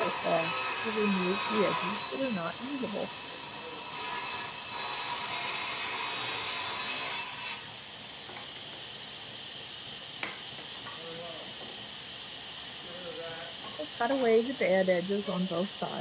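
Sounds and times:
table saw cutting wood: 0:00.0 - 0:07.8.

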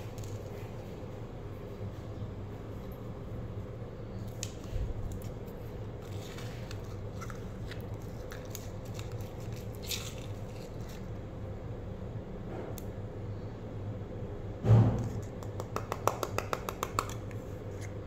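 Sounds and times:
steady low hum: 0:00.0 - 0:18.0
spoon scraping slime in plastic cup: 0:06.0 - 0:11.1.

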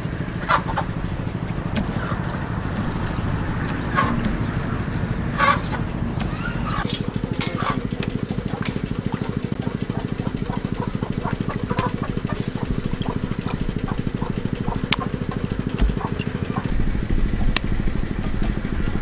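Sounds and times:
small engine chugging: 0:00.0 - 0:19.0.

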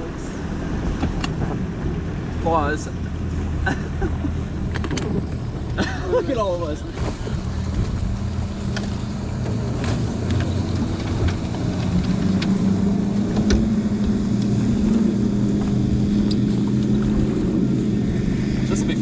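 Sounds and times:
outboard motor humming: 0:00.0 - 0:19.0
gear knocking and rustling: 0:04.2 - 0:05.8, 0:06.8 - 0:17.4.

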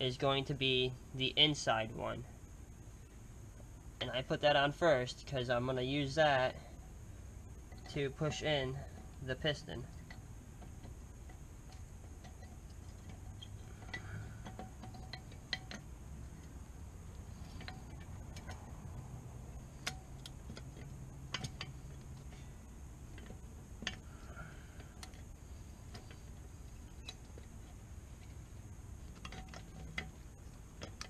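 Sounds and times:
faint low hum: 0:00.0 - 0:31.0
metal clicks and clinks: 0:09.8 - 0:16.5.

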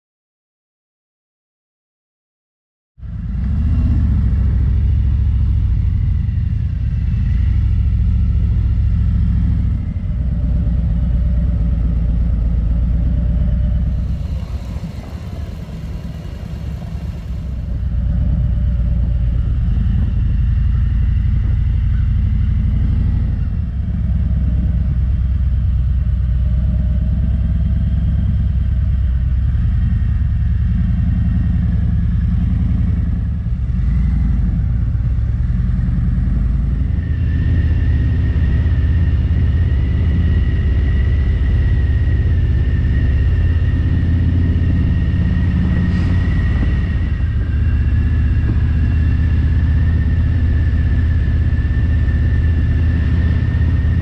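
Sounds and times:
motorcycle engine rumbling: 0:03.0 - 0:30.8, 0:31.5 - 0:54.0
hiss: 0:13.9 - 0:18.0.

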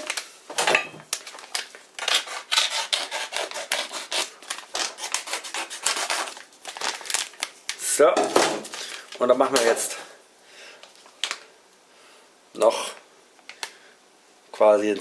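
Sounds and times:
plastic bag crinkling: 0:01.1 - 0:02.0, 0:06.1 - 0:10.0, 0:10.9 - 0:11.5
knife cutting plastic bag: 0:01.1 - 0:07.6.

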